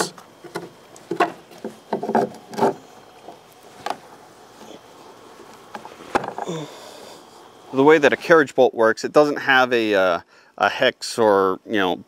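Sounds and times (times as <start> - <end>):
wooden lumber knocking: 0.0 - 2.8
wood rubbing: 0.0 - 6.8.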